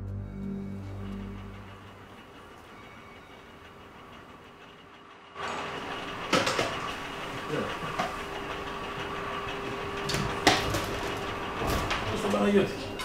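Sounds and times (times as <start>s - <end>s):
steady mechanical hum: 0.0s - 13.0s
sharp knocks and clatter: 5.3s - 8.4s, 10.0s - 12.3s.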